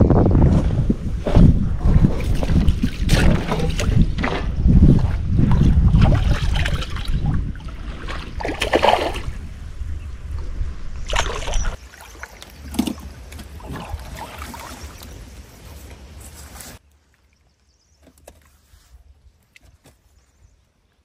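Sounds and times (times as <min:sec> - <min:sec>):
wind rumbling on microphone: 0:00.0 - 0:11.8
fish splashing in water: 0:02.2 - 0:09.5.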